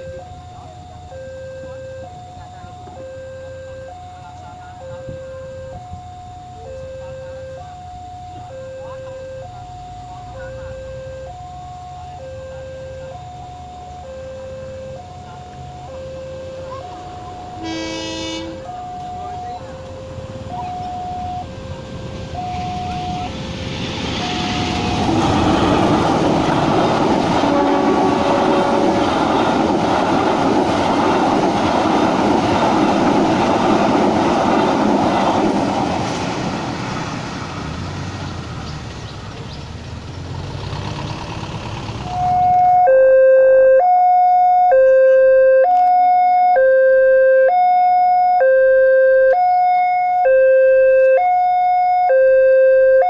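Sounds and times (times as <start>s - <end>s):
level crossing two-tone alarm bell: 0.0s - 23.4s, 42.1s - 53.0s
loud rushing noise: 21.6s - 39.0s.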